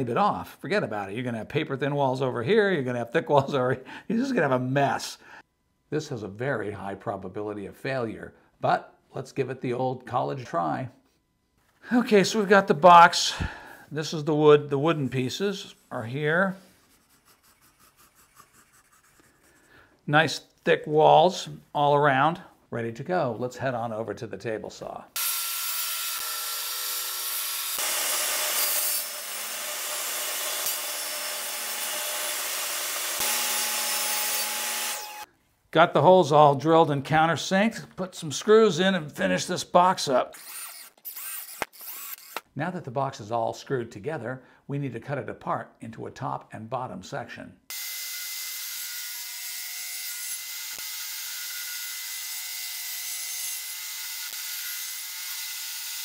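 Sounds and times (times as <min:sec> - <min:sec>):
table saw cutting board: 0:25.2 - 0:35.3, 0:40.4 - 0:42.5, 0:47.7 - 0:56.0.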